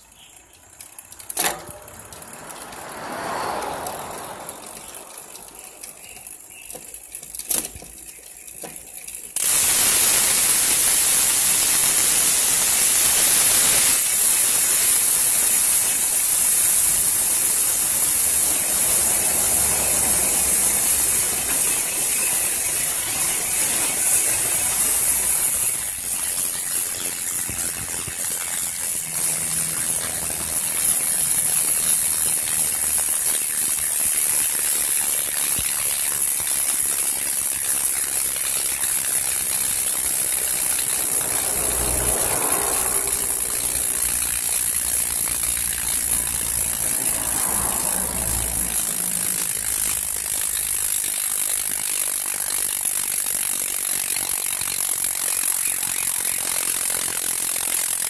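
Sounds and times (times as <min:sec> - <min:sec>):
freehub ratcheting buzz: 0:00.0 - 0:58.0.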